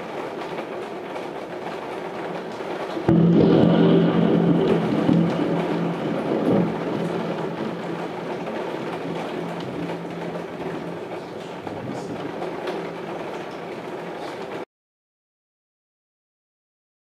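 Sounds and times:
steady rain: 0.0s - 14.7s
thunder rolling: 3.0s - 14.6s
low steady hum: 3.1s - 13.7s.

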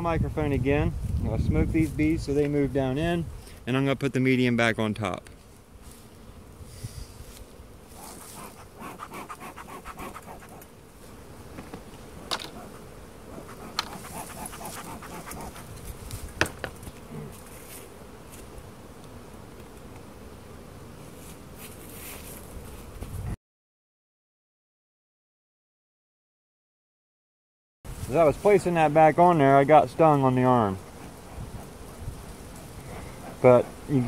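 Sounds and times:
bees buzzing: 2.8s - 23.3s, 27.9s - 34.0s.

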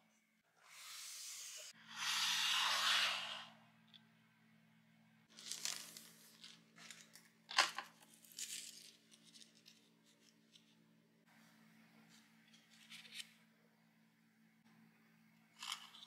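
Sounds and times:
nori and cellophane crinkling: 5.3s - 10.7s.

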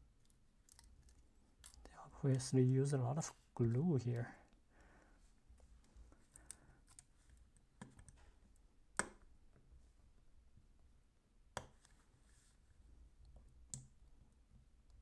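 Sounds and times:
small ticks: 0.2s - 2.5s.

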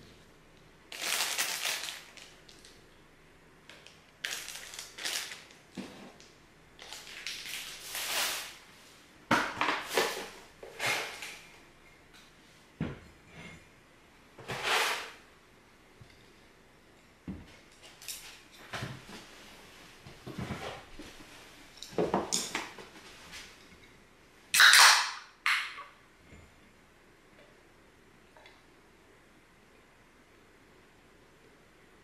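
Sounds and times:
rustling and crinkling handling noise: 0.9s - 2.8s, 3.6s - 12.8s, 17.4s - 24.0s.

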